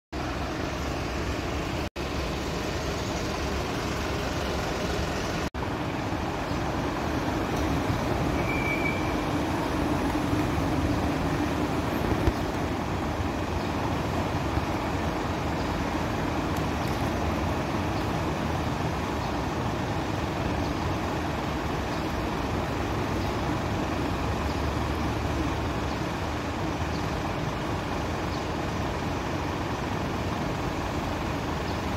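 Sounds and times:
street traffic: 0.1 - 31.9
diesel engine running: 0.2 - 31.9.

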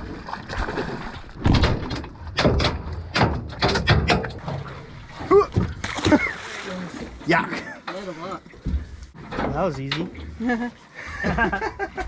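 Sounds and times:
fish thrashing and splashing: 0.0 - 1.9, 4.1 - 7.1
sharp knocks and thuds: 1.3 - 4.7.

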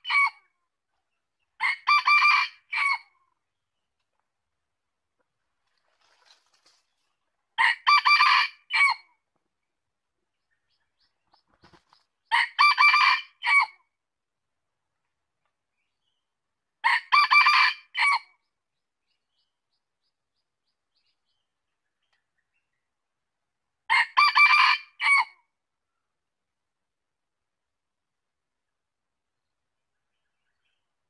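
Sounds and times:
rooster crowing: 1.6 - 3.0, 7.6 - 9.0, 12.3 - 13.7, 16.9 - 18.2, 23.9 - 25.3.

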